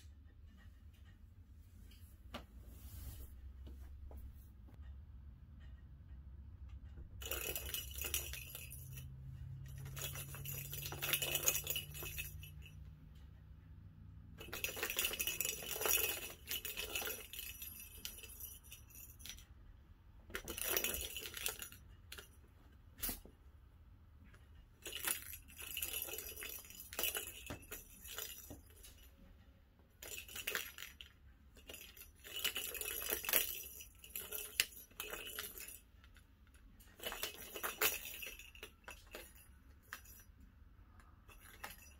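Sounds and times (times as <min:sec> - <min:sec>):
plastic balls rattling in toy track: 0:14.4 - 0:19.5, 0:36.8 - 0:40.2.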